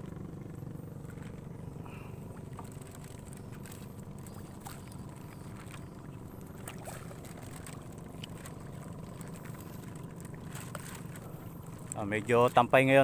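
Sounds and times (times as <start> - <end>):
boat engine drone: 0.0 - 13.0.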